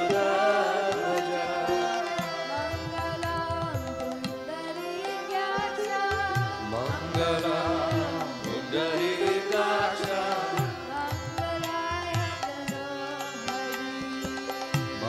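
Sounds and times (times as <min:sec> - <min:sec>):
harmonium: 0:00.0 - 0:15.0
sitar: 0:00.0 - 0:15.0
voices singing devotional chant: 0:00.0 - 0:15.0.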